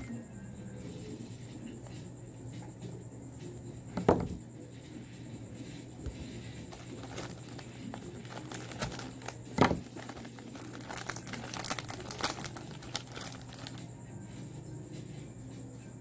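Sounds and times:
plastic wrapper crinkling and tearing: 6.7 - 13.8.

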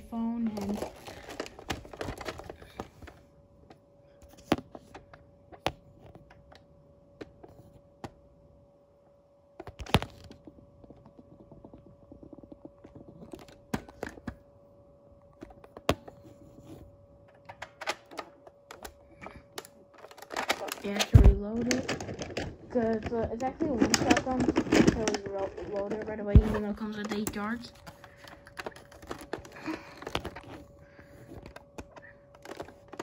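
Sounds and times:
faint steady hum: 0.0 - 33.0.

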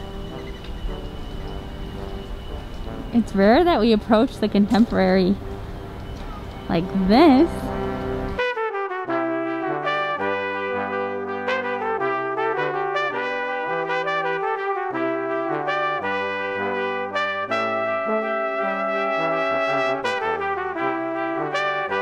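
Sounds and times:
brass instrumental music: 0.0 - 22.0.

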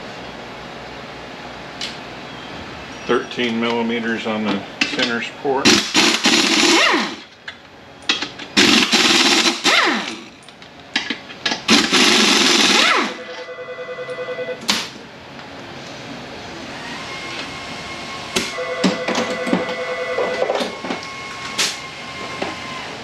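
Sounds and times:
air tool zipping bolts: 5.7 - 7.3, 8.6 - 10.4, 11.5 - 13.2.

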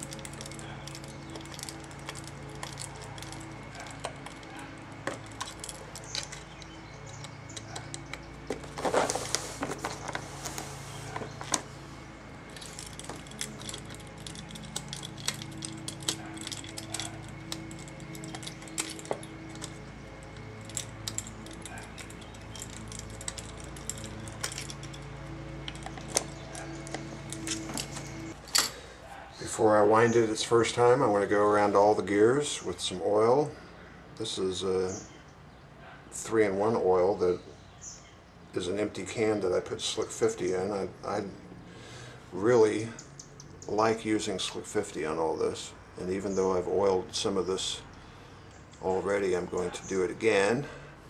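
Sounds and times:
metal tools clinking on metal: 0.0 - 10.2, 12.3 - 31.1.

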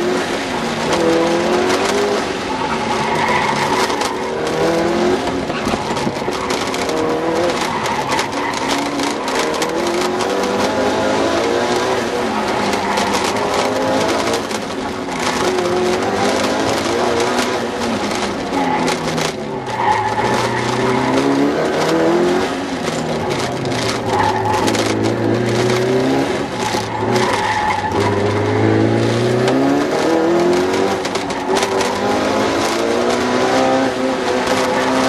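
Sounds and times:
car engine revving: 0.0 - 35.0
tire squeal: 1.8 - 10.4, 11.8 - 21.9, 22.8 - 29.0.

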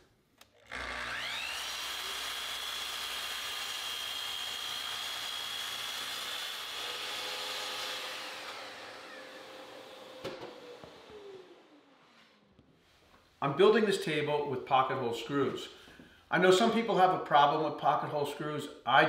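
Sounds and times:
miter saw whining: 0.6 - 12.4.

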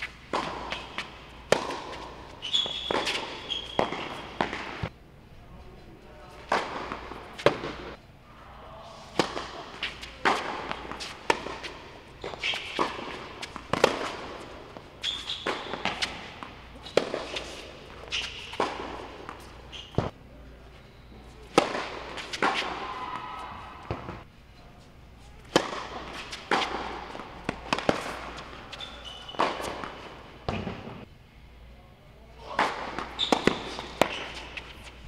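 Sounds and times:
tennis ball hits and bounces: 0.0 - 4.9, 6.4 - 8.0, 9.2 - 20.1, 21.5 - 22.9, 23.8 - 24.2, 25.4 - 31.0, 32.5 - 35.0.

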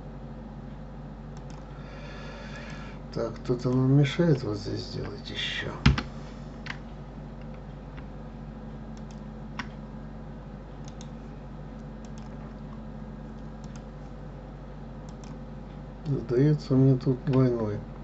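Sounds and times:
steady low hum: 0.0 - 18.0
keyboard and mouse clicks: 1.4 - 1.7, 9.0 - 9.8, 10.8 - 11.2, 12.0 - 12.7, 13.4 - 13.9, 15.0 - 15.4.

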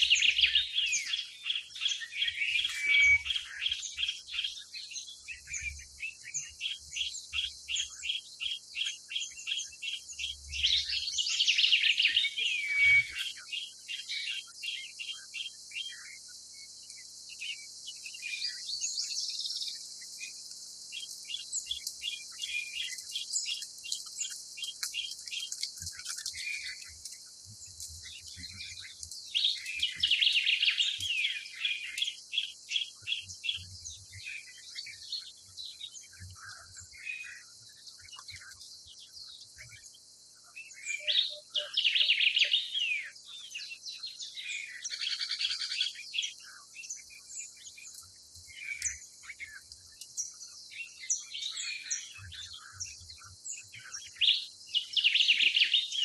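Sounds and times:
birds screeching harshly: 0.0 - 4.3, 10.2 - 14.8
birds chirping quickly: 0.0 - 56.0.

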